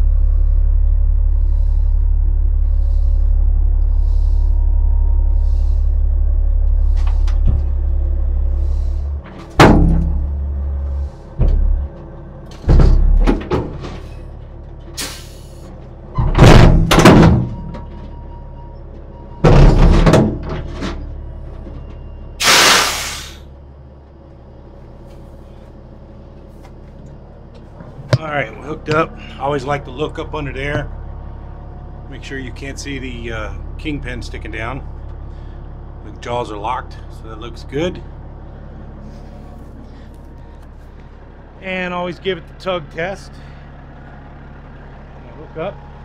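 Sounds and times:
diesel truck engine rumbling: 0:00.0 - 0:46.0
trailer coupling clunks and bangs: 0:09.2 - 0:10.5, 0:11.4 - 0:15.0, 0:16.1 - 0:18.1, 0:19.4 - 0:21.1
short air hisses: 0:15.0 - 0:15.6, 0:22.4 - 0:23.5.

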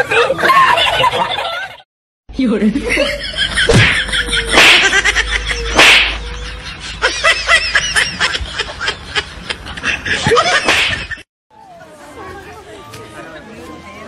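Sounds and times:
people laughing: 0:00.0 - 0:01.8, 0:02.8 - 0:11.2
high-pitched giggling: 0:02.8 - 0:10.7.

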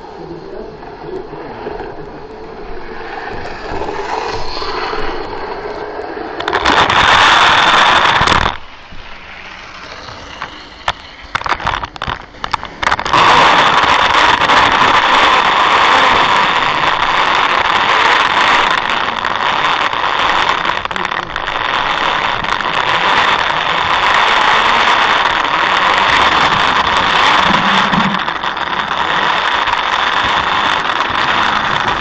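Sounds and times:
sharp clicks and crackles: 0:00.8 - 0:32.0
model train motor whirring: 0:06.4 - 0:20.6.

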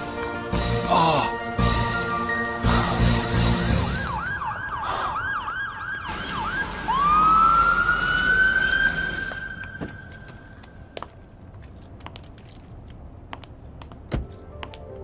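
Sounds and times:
siren rising wail: 0:03.5 - 0:10.6
police siren yelp: 0:03.8 - 0:09.8.

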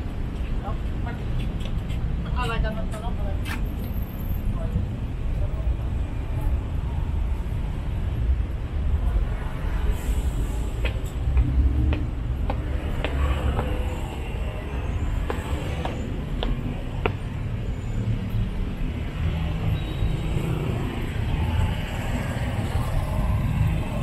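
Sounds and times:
traffic rumble: 0:00.0 - 0:24.0.

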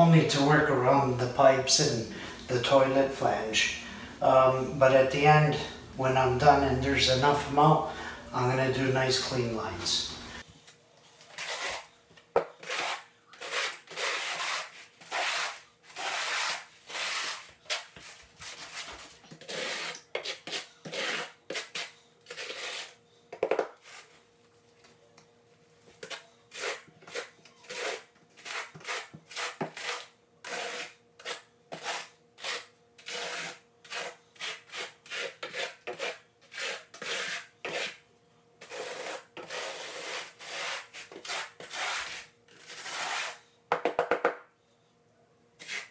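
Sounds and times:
trowel scraping mortar: 0:11.2 - 0:23.0, 0:26.0 - 0:38.0, 0:38.6 - 0:43.4, 0:45.6 - 0:45.9.

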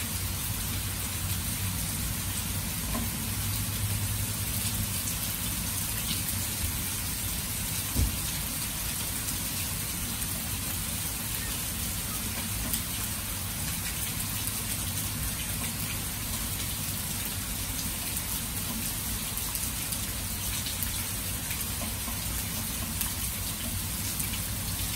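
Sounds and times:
heavy rain on grass and water: 0:00.0 - 0:24.9
short thump: 0:08.0 - 0:08.2.

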